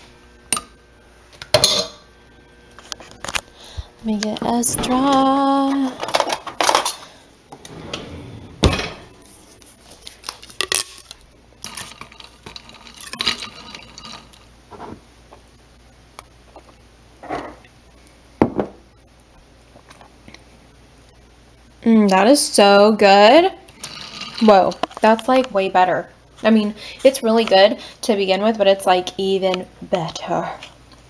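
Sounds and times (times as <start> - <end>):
utensils and glassware clinking: 11.7 - 14.4.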